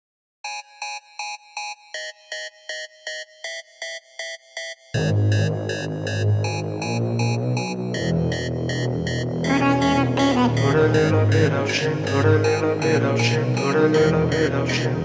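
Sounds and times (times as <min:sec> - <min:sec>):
repeating synth notes: 0:00.4 - 0:15.0
deep hip-hop bass loop: 0:05.0 - 0:15.0.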